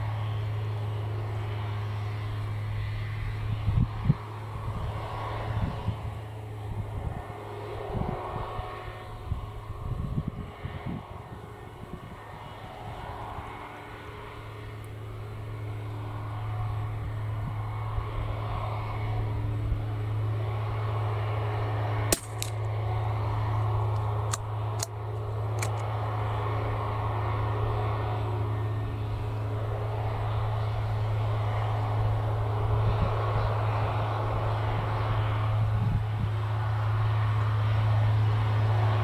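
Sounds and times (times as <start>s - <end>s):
propeller aircraft engine drone: 0.0s - 39.0s
rifle shot: 22.1s - 22.6s
rifle bolt clicks: 25.6s - 25.8s.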